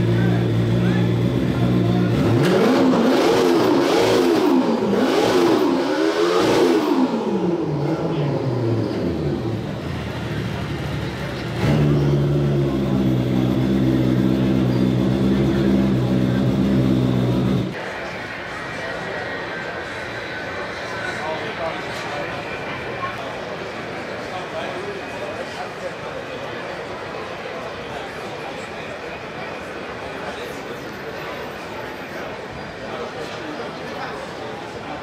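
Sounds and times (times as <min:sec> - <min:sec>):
snowmobile engine idling and revving: 0:00.0 - 0:17.8
steady loud engine note: 0:00.0 - 0:22.8.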